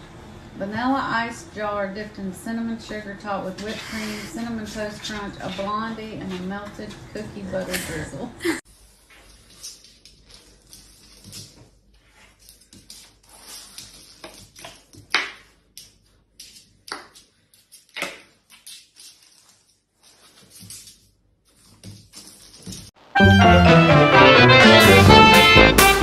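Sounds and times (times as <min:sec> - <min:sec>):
dog scuffling on tile floor: 0:03.4 - 0:08.2, 0:08.8 - 0:15.1, 0:16.4 - 0:23.0.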